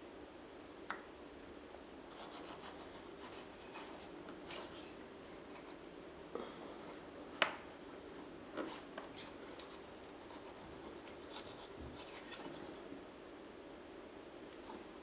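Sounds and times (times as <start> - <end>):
knife scraping aloe leaf: 8.6 - 12.8.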